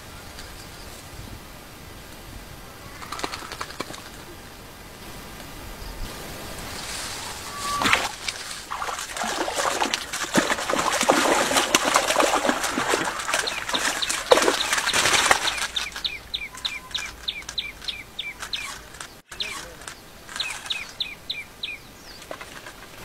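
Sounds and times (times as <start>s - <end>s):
water splashing and churning: 6.3s - 19.0s
bird calling short falling notes: 7.0s - 8.4s, 13.4s - 21.1s.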